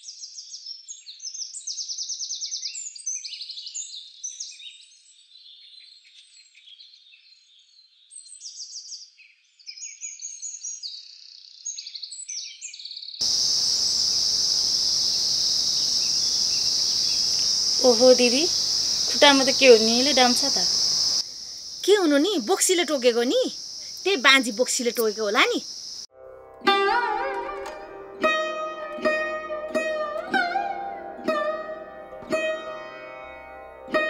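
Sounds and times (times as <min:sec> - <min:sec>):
small birds chirping: 0:00.1 - 0:26.1
background hiss: 0:13.2 - 0:26.1
crickets droning: 0:13.2 - 0:26.1.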